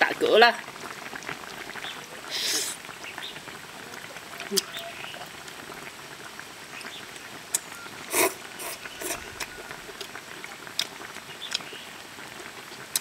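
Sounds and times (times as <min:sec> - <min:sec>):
mouth noises: 0:03.8 - 0:05.4, 0:08.0 - 0:10.2
loud slurp: 0:08.1 - 0:10.0.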